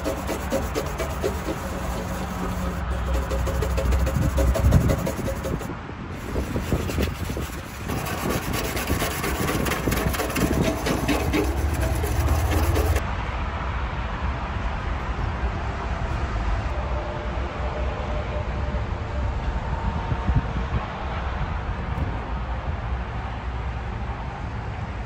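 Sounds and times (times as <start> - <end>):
brush scrubbing metal sign: 0.0 - 13.0
outdoor background noise: 0.0 - 25.0.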